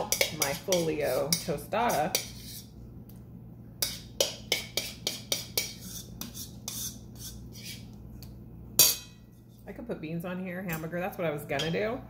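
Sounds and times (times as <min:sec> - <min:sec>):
metal spoon scraping bowl: 0:00.0 - 0:02.7, 0:03.8 - 0:08.0.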